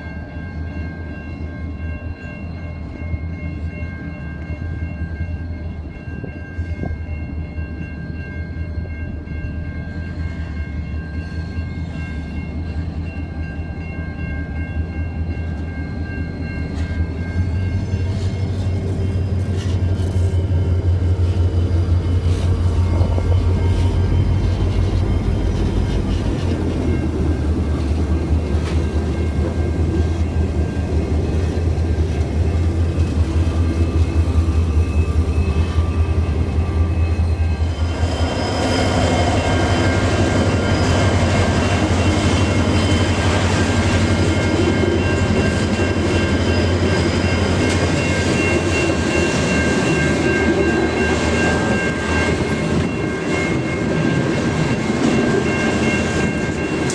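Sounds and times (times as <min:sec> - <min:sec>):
locomotive engine hum: 0:08.2 - 0:56.9
high-pitched metallic squeals: 0:17.4 - 0:27.0, 0:30.2 - 0:48.2.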